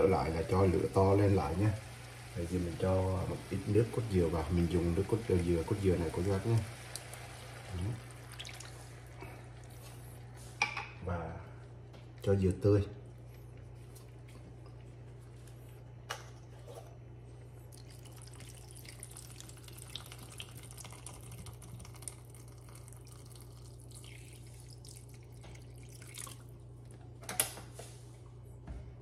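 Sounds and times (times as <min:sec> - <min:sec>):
liquid pouring into a pot: 0:00.0 - 0:09.7, 0:17.6 - 0:26.7
steady low hum: 0:00.0 - 0:29.0.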